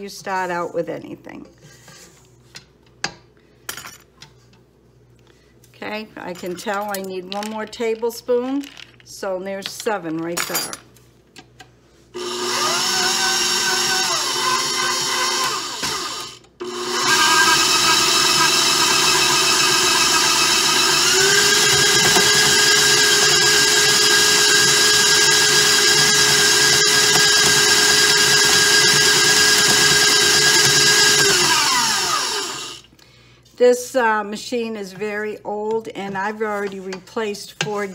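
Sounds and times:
stand mixer motor whining: 0:12.2 - 0:32.9.

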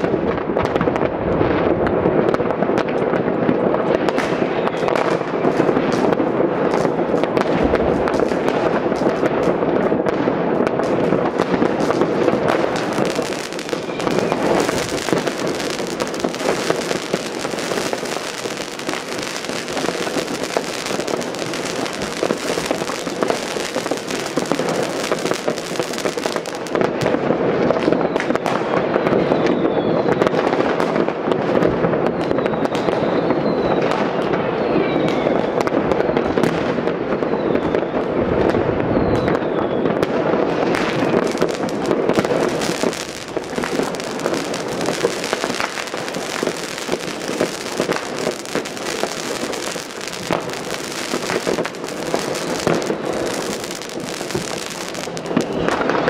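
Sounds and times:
distant fireworks crackling: 0:00.0 - 0:56.0
faint firework whistles: 0:10.7 - 0:30.8, 0:31.6 - 0:56.0.

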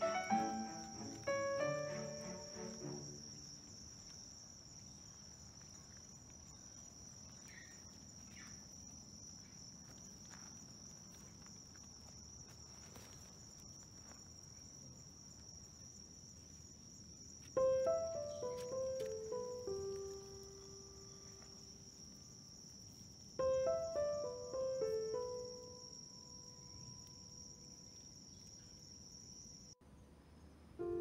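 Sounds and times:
insects chirring: 0:00.0 - 0:31.0.

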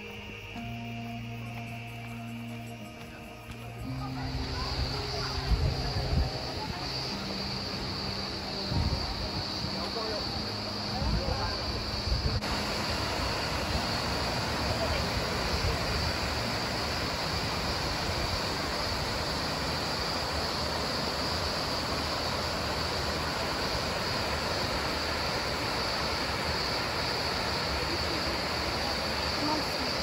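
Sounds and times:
steady high-pitched hiss: 0:00.0 - 0:30.0
water rushing over rapids: 0:11.6 - 0:30.0.

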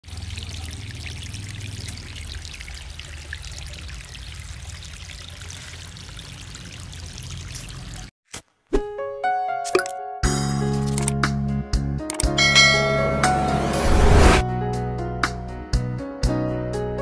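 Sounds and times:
low hum: 0:12.4 - 0:14.4.

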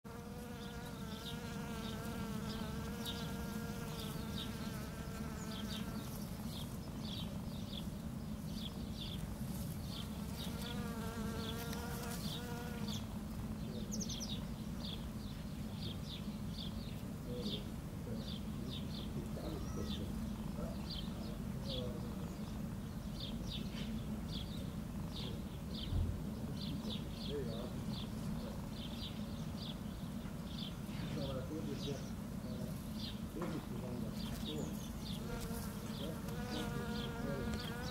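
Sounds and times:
honeybee buzzing: 0:00.1 - 0:07.5, 0:09.4 - 0:13.2, 0:32.1 - 0:37.9.

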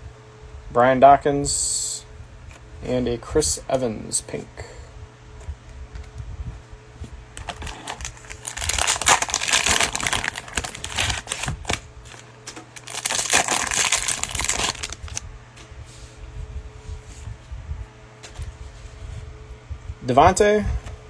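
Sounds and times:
plastic wrapper crinkling: 0:07.4 - 0:15.2.

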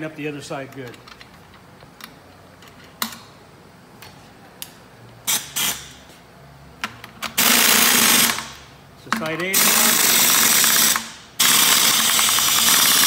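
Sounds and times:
pneumatic wrench: 0:05.3 - 0:06.0, 0:07.3 - 0:08.7, 0:09.5 - 0:13.0.

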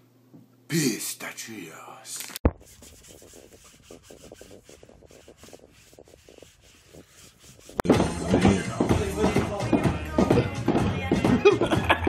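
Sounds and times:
roller scratching beard stubble: 0:02.2 - 0:07.9
loud music: 0:07.9 - 0:12.0.

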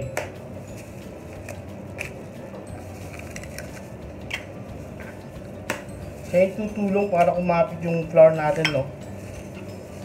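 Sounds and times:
eggshells cracking: 0:03.1 - 0:04.4.

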